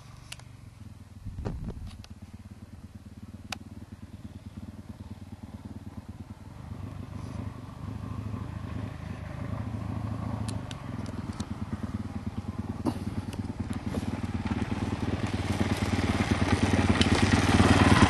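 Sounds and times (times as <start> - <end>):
dirt bike engine putting: 9.6 - 18.0.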